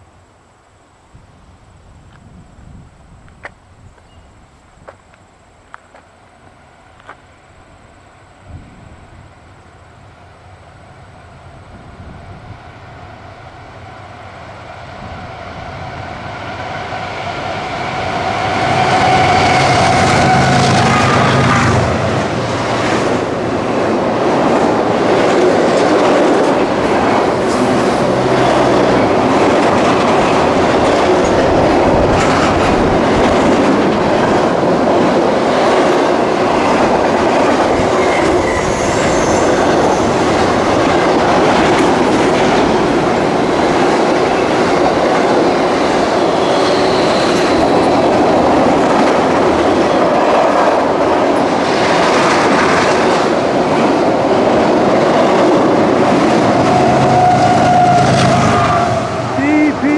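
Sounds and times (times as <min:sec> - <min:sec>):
freight train wheels clattering: 0:18.0 - 0:58.9
high-pitched wheel squeals: 0:37.7 - 0:40.6, 0:46.3 - 0:47.9, 0:56.7 - 0:59.3.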